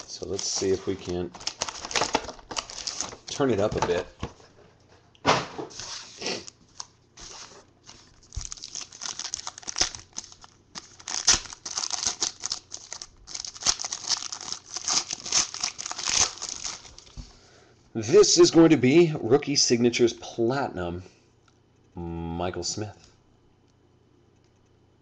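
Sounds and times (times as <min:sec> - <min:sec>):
foil pack crinkling and tearing: 0:00.0 - 0:03.8, 0:06.7 - 0:17.2.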